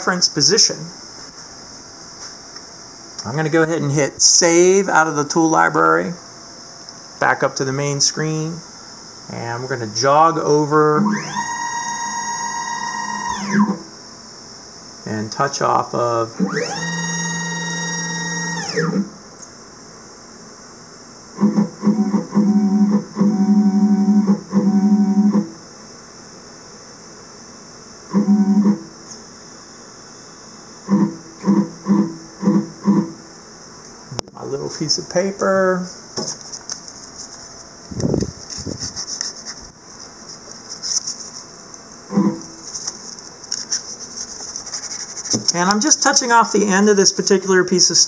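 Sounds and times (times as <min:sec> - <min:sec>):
stepper motors whining: 0:10.9 - 0:13.9, 0:16.3 - 0:19.2
paper crackling and scratching: 0:38.3 - 0:39.7, 0:42.6 - 0:46.0.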